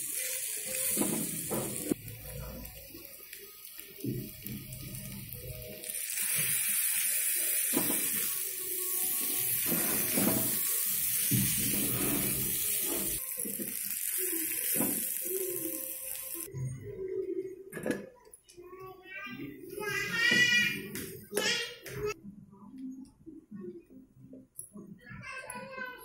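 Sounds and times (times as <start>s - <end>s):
chicken sizzling in hot oil: 0.0s - 16.5s
metal spatula scraping a pan: 9.2s - 13.2s.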